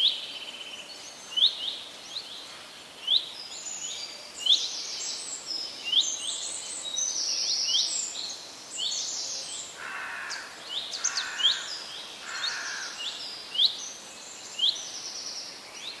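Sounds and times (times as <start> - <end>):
birds chirping and trilling: 0.0 - 16.0
low bird calls: 9.3 - 13.8.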